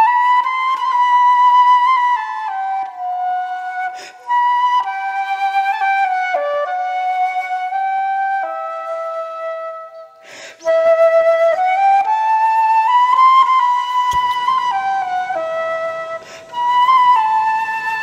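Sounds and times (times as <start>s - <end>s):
slow flute melody: 0.0s - 18.0s
breaths between phrases: 10.2s - 10.6s.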